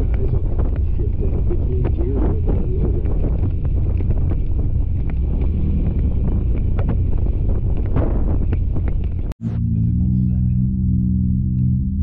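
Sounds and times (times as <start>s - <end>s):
wind buffeting microphone: 0.0s - 9.4s.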